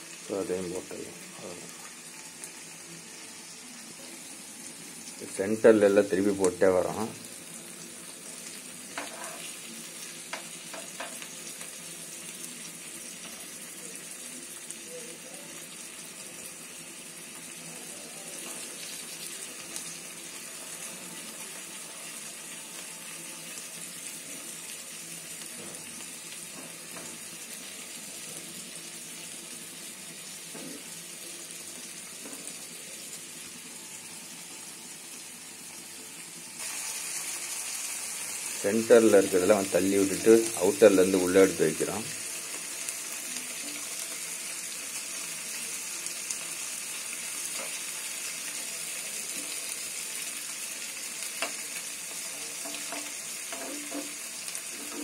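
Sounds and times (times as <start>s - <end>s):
fish sizzling in oil: 0.0s - 55.0s
metal spoon tapping pan: 52.6s - 54.1s.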